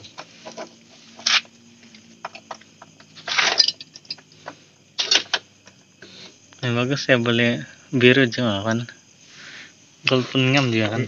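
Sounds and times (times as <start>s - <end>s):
metal scraping rattle: 3.2s - 4.2s.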